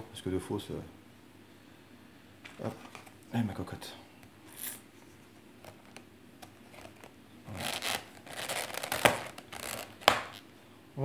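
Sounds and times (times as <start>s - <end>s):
plastic lid crackling: 5.6s - 10.4s.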